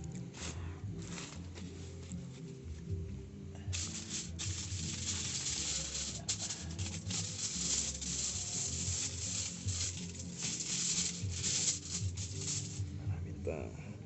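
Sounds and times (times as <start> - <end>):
background music: 0.0 - 14.0
foil crumpling: 0.3 - 2.4, 3.8 - 12.8.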